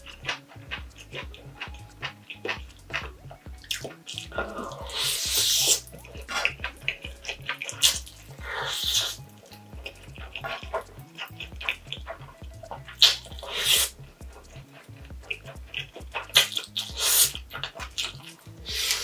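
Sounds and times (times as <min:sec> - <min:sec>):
wet chewing and lip-smacking: 0:00.0 - 0:19.0
person slurping noodles: 0:03.7 - 0:09.2, 0:12.9 - 0:14.0, 0:16.2 - 0:19.0.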